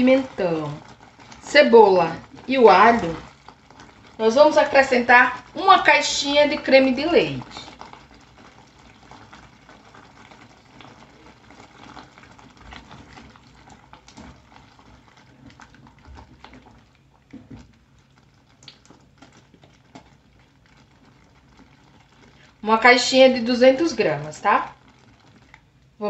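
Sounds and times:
sauce simmering in a pan: 0.0s - 26.0s
clicks and pops: 18.5s - 20.2s.

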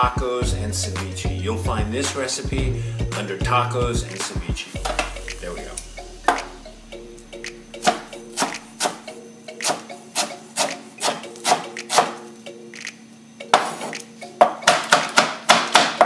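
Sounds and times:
knife chopping on wooden board: 7.8s - 9.0s, 9.6s - 12.2s, 13.6s - 16.0s.

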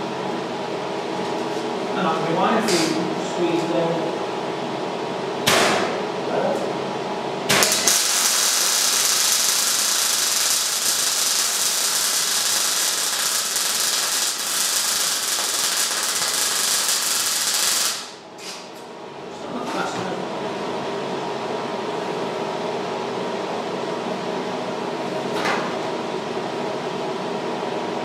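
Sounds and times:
welding arc: 7.5s - 18.2s.

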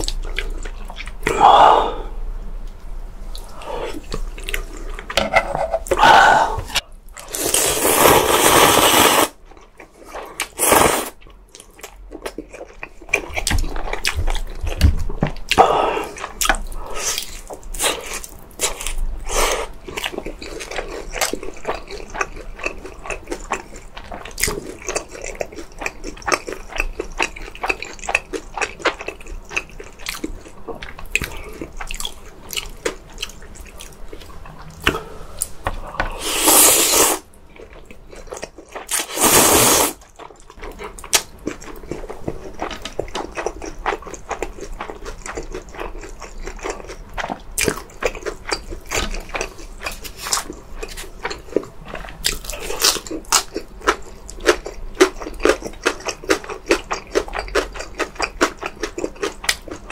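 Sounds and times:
loud slurp: 7.3s - 9.3s, 10.6s - 11.2s, 36.2s - 37.2s, 38.9s - 40.0s
wet chewing: 36.3s - 59.9s.

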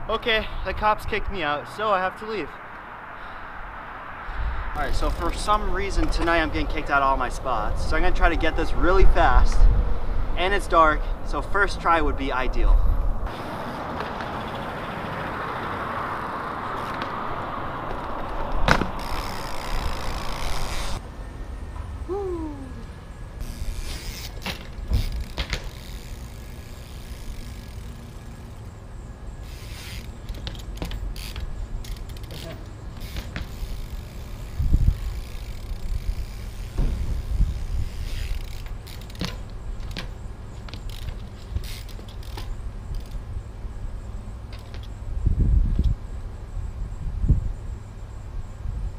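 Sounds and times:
street traffic hiss: 0.0s - 48.9s
bike creaking and clicking: 2.6s - 46.2s
bike hitting brick wall: 17.9s - 20.9s, 23.4s - 28.0s, 29.5s - 43.1s.

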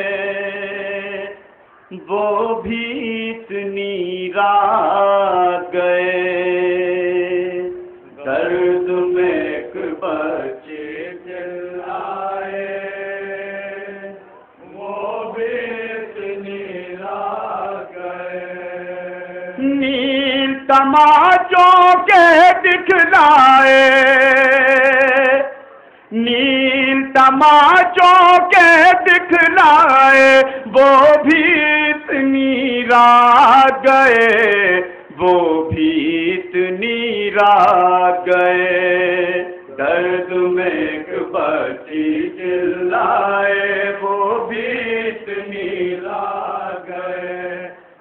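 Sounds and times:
man chanting into a microphone: 19.6s - 44.4s.

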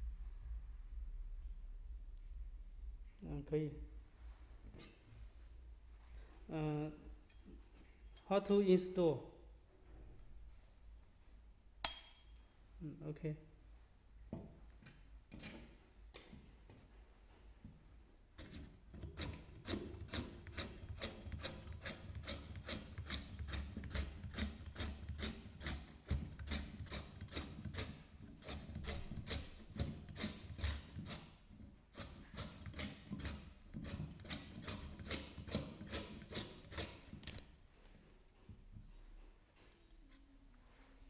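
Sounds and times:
carrot scraping over slicer blade: 18.4s - 37.4s.

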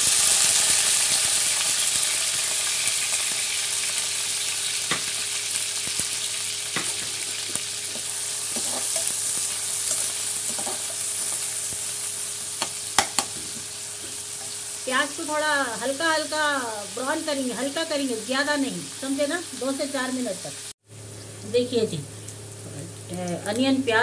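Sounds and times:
onions sizzling in oil: 0.0s - 24.0s
steel ladle knocking pan: 6.8s - 9.1s, 12.6s - 14.6s.

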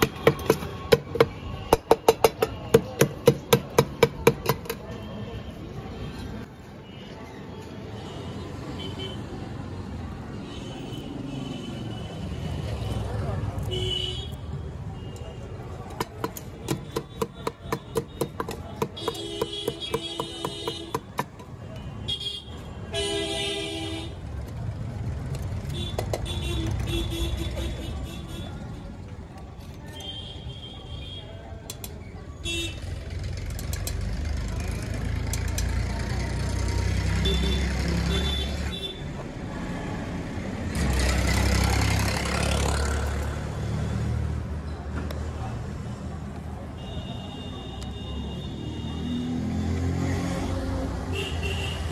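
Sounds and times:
wooden stick pounding in steel bowl: 0.0s - 4.8s, 15.9s - 21.5s
passing vehicle engines rumbling: 4.8s - 17.0s, 31.3s - 46.8s, 47.4s - 51.9s.

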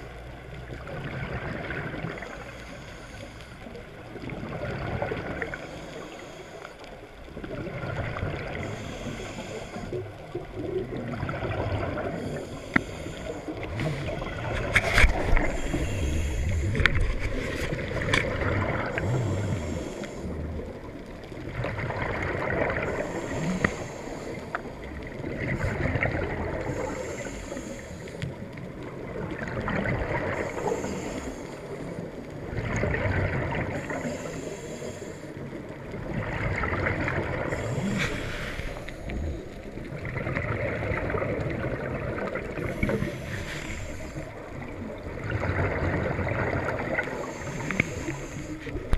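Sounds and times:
exhaled bubbles rushing underwater: 0.0s - 2.6s, 3.2s - 48.9s
regulator inhale hiss: 2.1s - 3.8s, 5.4s - 7.0s, 8.5s - 10.4s, 12.0s - 14.3s, 15.1s - 17.0s, 18.8s - 20.7s, 22.8s - 24.9s, 26.5s - 28.4s, 30.3s - 32.0s, 33.7s - 35.6s, 37.4s - 39.7s, 42.6s - 44.7s, 47.0s - 48.9s.

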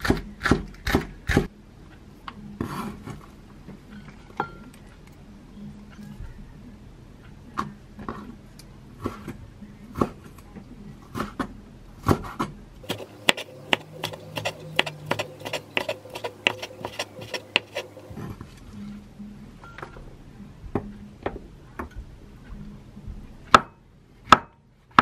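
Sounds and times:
knife chopping on wooden board: 12.1s - 18.1s.

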